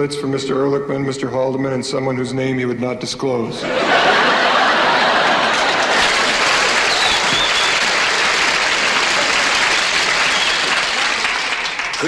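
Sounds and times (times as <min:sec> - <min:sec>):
studio audience applauding: 0:03.8 - 0:12.0.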